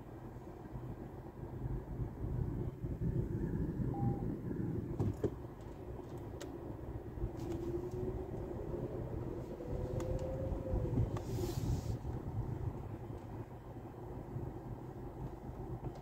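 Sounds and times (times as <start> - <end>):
car engine and tyre rumble: 0.0 - 16.0
short beep: 3.9 - 4.3.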